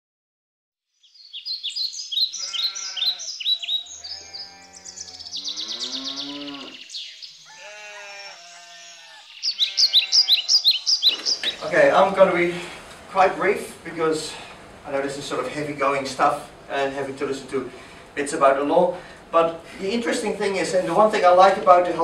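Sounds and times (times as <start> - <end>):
high bird chirps: 1.0 - 11.7
wavering animal bleats: 2.3 - 11.6.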